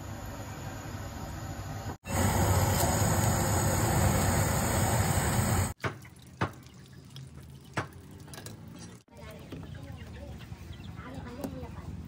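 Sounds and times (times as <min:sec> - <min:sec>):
gas burner flame rushing: 0:02.0 - 0:05.8.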